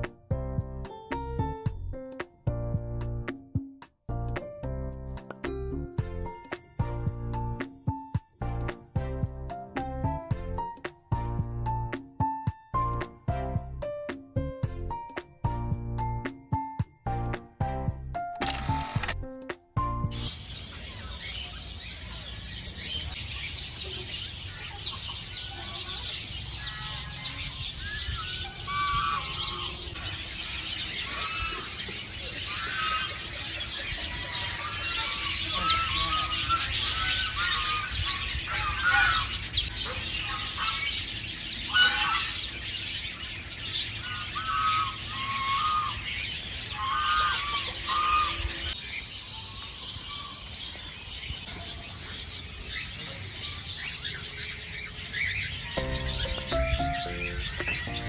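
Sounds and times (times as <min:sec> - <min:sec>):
birds chirping and calling: 0:19.8 - 0:58.0.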